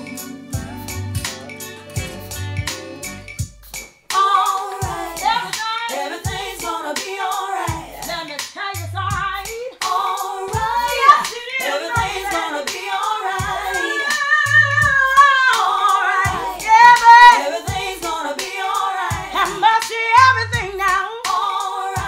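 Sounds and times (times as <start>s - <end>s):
steady low beat: 0.0s - 3.8s, 4.8s - 5.5s, 6.2s - 6.8s, 7.7s - 8.2s, 8.8s - 9.6s, 10.5s - 15.2s, 16.2s - 18.2s, 19.1s - 19.6s
woman singing soulful melody: 4.1s - 22.0s.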